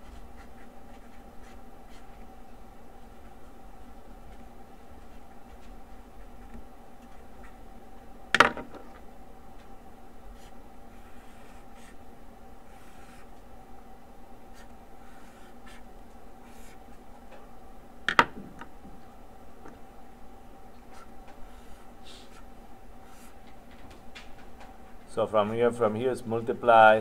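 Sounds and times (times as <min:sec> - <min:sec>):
marker scratching on paper: 0:00.0 - 0:02.2, 0:10.4 - 0:12.0, 0:12.7 - 0:13.3, 0:14.5 - 0:16.8, 0:20.9 - 0:23.4
faint hum: 0:00.0 - 0:27.0.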